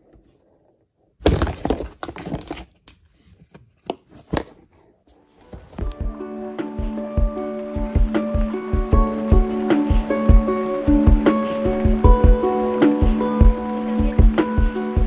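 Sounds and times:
cardboard box crackling: 1.2 - 3.0, 3.9 - 6.1.

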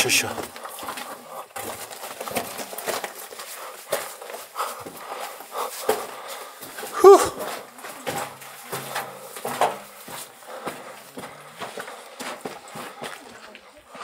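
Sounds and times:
short vocal sound: 7.0 - 7.4.

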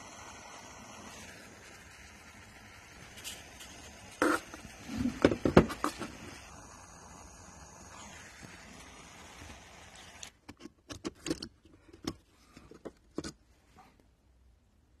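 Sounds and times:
steady hiss: 0.0 - 10.4.

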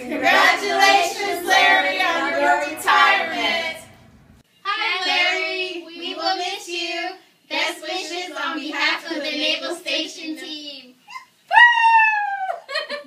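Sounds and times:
women singing: 0.0 - 4.0, 4.6 - 10.1
group of voices singing: 0.0 - 4.1, 4.7 - 10.2.

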